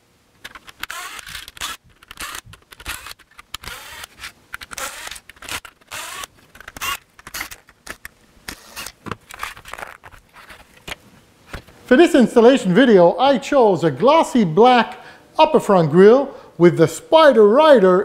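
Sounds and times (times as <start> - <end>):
screws and plastic rattling: 0.4 - 11.0
cordless driver motor whine: 0.8 - 7.6.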